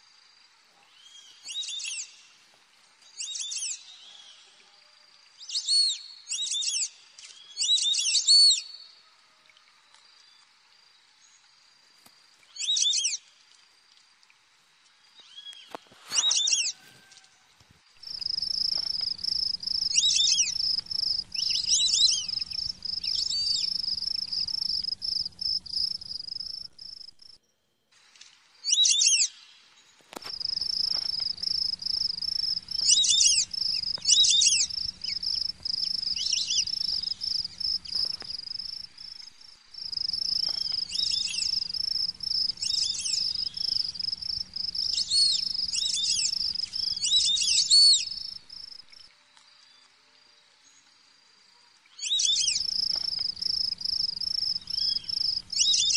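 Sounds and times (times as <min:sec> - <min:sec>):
short chirping calls: 0:15.2 - 0:16.8, 0:18.0 - 0:27.4, 0:30.2 - 0:49.1, 0:52.0 - 0:55.9
crickets trilling: 0:17.8 - 0:27.4, 0:30.0 - 0:55.9.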